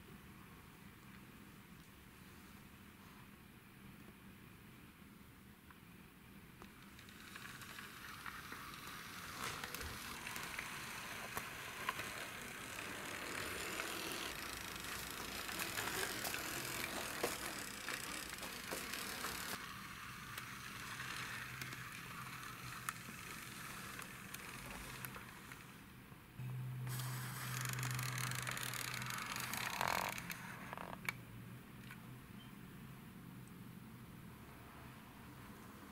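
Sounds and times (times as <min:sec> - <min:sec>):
toy car wheels rolling on wood: 0:06.6 - 0:25.8, 0:26.9 - 0:31.0.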